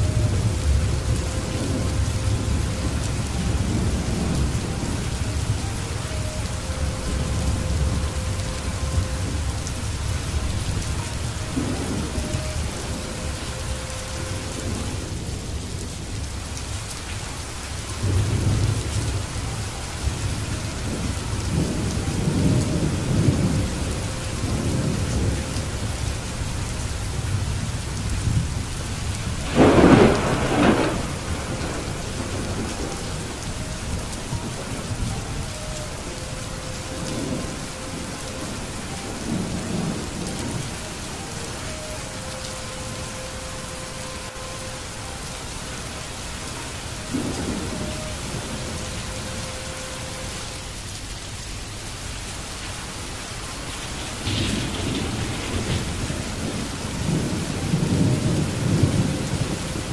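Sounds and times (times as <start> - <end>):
thunder rolling: 0.0 - 16.2, 18.0 - 41.9, 53.8 - 59.9
steady rainfall: 0.0 - 59.9
sharp thunder crack: 29.4 - 32.9.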